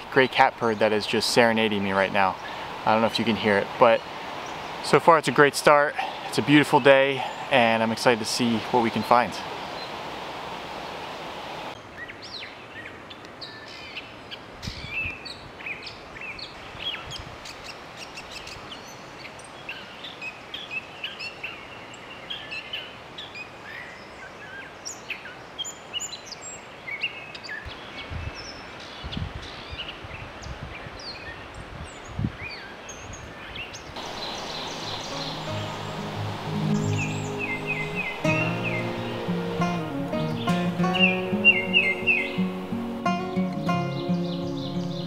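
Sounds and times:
bird singing varied squeaky notes: 34.1 - 45.0.

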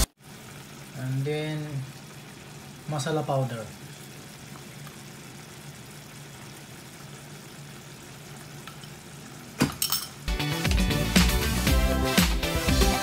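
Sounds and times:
sauce bubbling in a pan: 0.0 - 10.4.

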